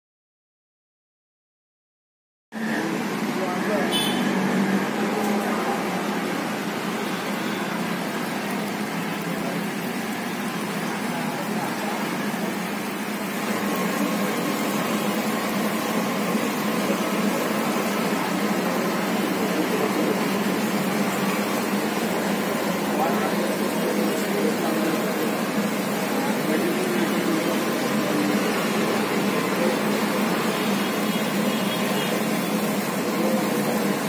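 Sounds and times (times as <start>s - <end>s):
batter sizzling in hot oil: 4.0s - 34.0s.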